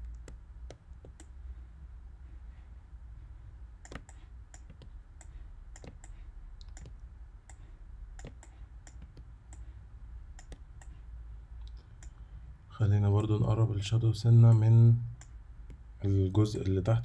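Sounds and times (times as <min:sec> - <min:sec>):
low steady hum: 0:00.0 - 0:17.0
computer mouse and keyboard clicks: 0:03.8 - 0:07.0, 0:08.2 - 0:09.6.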